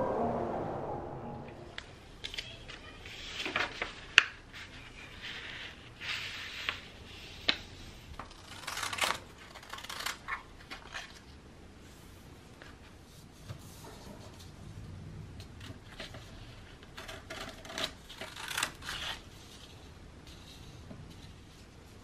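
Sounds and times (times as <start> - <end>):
paper rustling and crinkling: 2.2 - 11.4.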